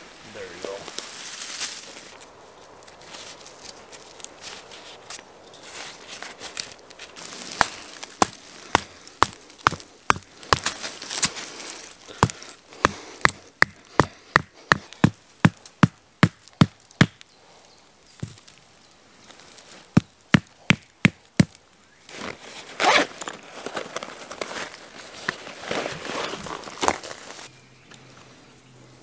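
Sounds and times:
tarp fabric rustling: 0.0s - 12.6s, 22.0s - 27.5s
hammer knocking tent peg: 12.2s - 17.2s.

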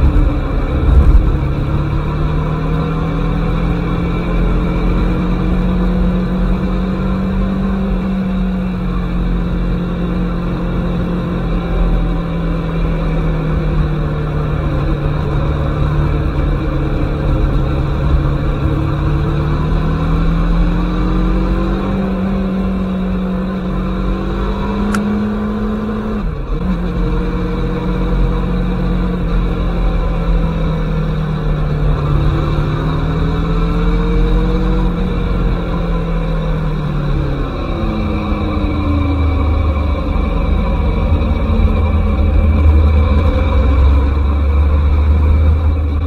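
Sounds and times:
steady low rush: 0.0s - 3.8s, 36.9s - 46.0s
motorcycle engine running: 0.0s - 46.0s.

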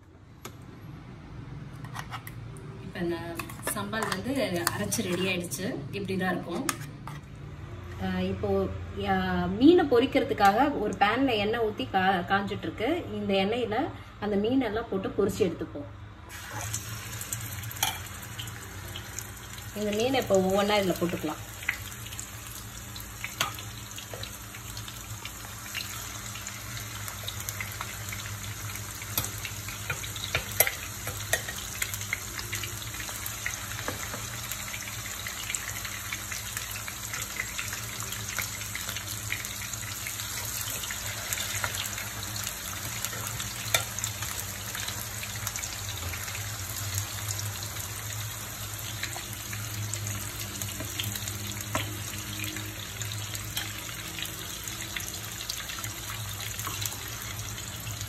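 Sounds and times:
fish sizzling in hot oil: 16.3s - 58.0s.

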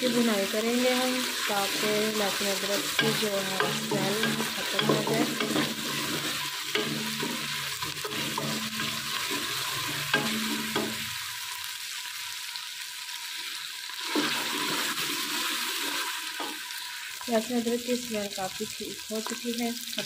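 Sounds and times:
onions sizzling in hot oil: 0.0s - 20.0s
spatula stirring in pot: 1.4s - 11.1s.

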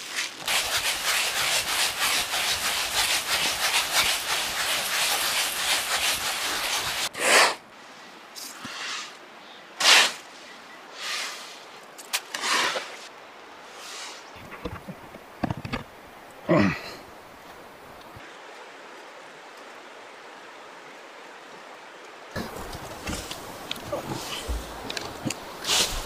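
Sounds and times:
dry seed rustling by hand: 0.0s - 7.1s
seed pouring into basket: 0.0s - 7.1s.

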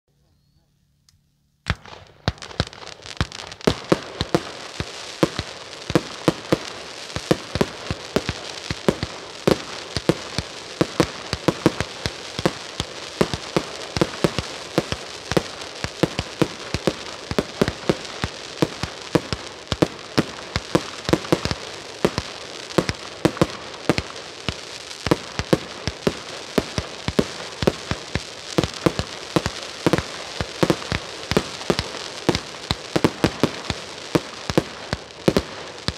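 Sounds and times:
crackling hiss: 1.0s - 35.9s
firework cake sharp bangs: 1.7s - 35.9s.

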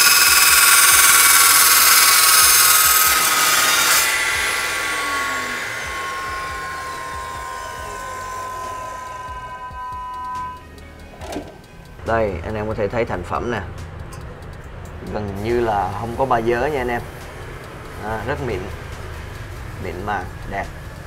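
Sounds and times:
metal saw screeching through steel: 0.0s - 10.7s
saw blade whining as it spins down: 0.0s - 10.8s, 15.4s - 21.0s.

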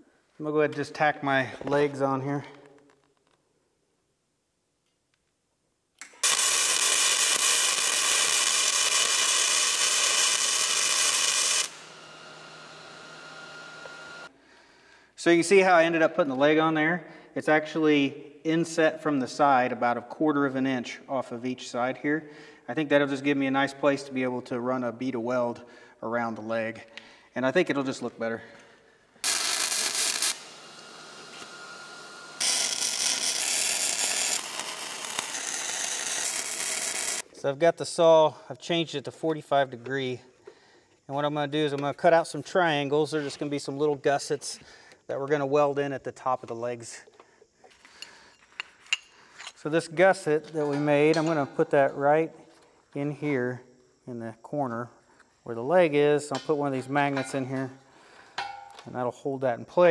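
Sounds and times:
welder arc crackling: 6.0s - 14.3s, 29.2s - 37.2s.

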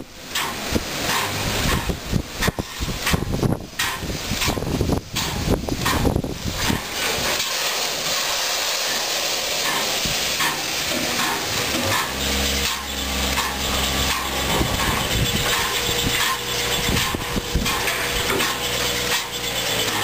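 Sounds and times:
steam hissing from locomotive: 0.0s - 20.0s
low steady drone: 6.5s - 20.0s.

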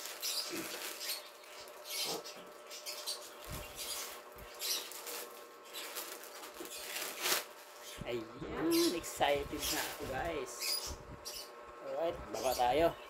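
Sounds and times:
plastic bag crinkling: 0.0s - 8.0s, 9.0s - 10.5s.

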